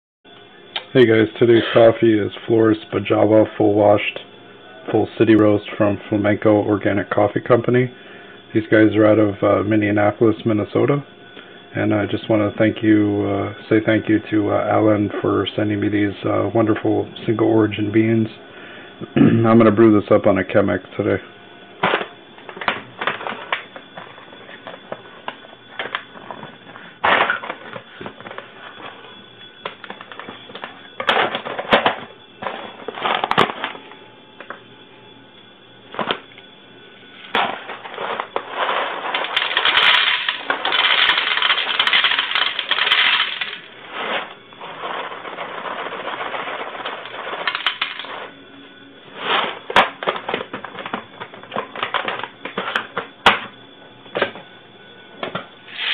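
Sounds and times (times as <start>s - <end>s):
coffee beans pouring into glass bowl: 39.1s - 43.6s, 47.4s - 48.1s.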